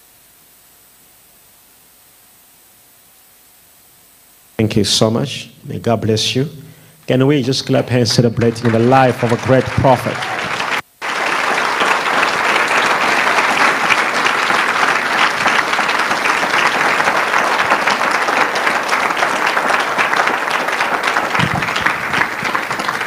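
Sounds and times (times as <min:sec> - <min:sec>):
crowd applause: 0:07.2 - 0:23.0.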